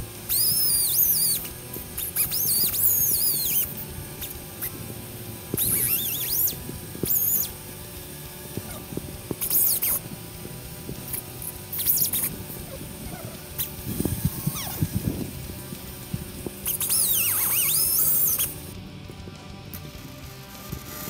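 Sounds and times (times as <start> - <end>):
air cut-off tool whine: 0.0 - 21.0
disc grinding steel: 0.0 - 21.0.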